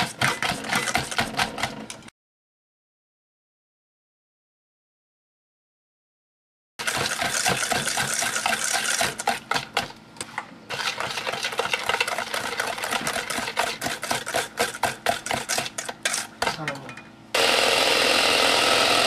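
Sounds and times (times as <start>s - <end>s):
whisk beating batter in metal bowl: 0.0s - 1.9s, 6.8s - 10.0s, 10.7s - 16.6s.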